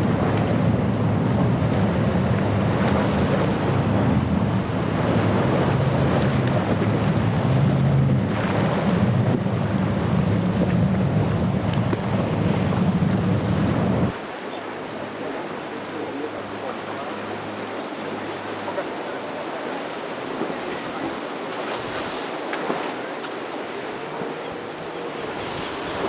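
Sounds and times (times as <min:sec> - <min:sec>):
wind on microphone: 0:00.0 - 0:14.2
boat engine drone: 0:00.0 - 0:26.0.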